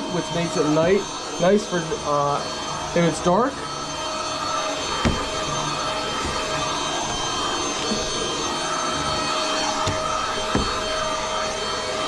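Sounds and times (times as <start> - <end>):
stick vacuum motor whine: 0.0 - 12.0.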